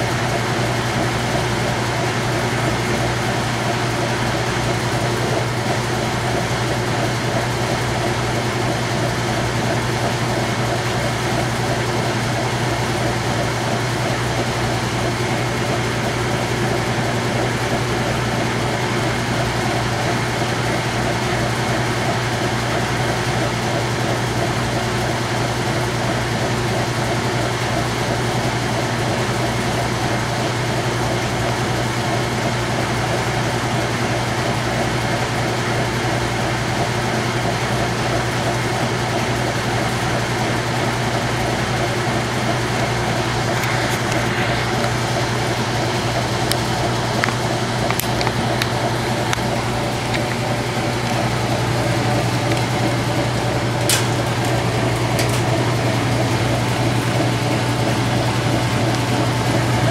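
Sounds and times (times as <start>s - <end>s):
washing machine spinning hum: 0.0s - 59.9s.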